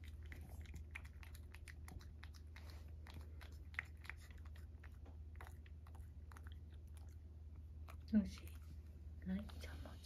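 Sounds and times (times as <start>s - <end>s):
cat licking from saucer: 0.0s - 10.0s
low steady hum: 0.0s - 10.0s.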